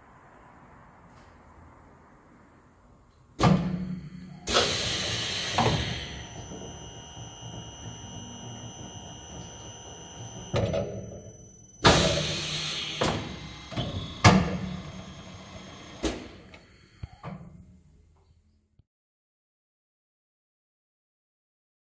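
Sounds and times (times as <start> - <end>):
machine clunks: 3.4 - 17.6
machine low hum: 3.5 - 18.4.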